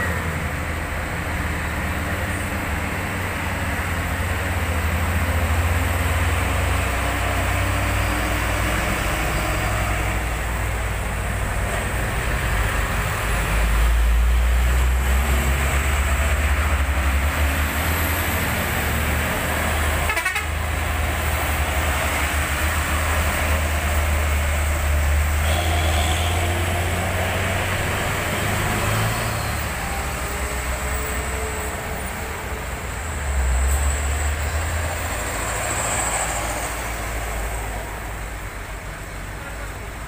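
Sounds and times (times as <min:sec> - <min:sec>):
diesel trucks labouring uphill: 0:00.0 - 0:40.0
truck horn toot: 0:19.9 - 0:20.6, 0:25.4 - 0:26.9.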